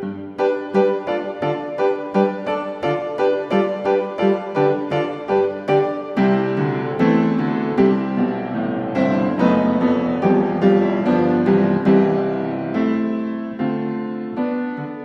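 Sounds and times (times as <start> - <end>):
background piano music: 0.0 - 15.0.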